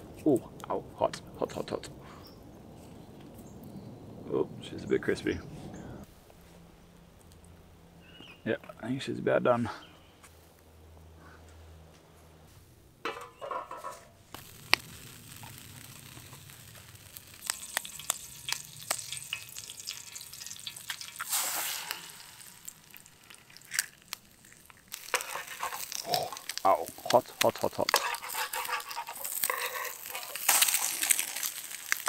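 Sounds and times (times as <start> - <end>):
oil sizzling in frying pan: 14.4 - 32.0.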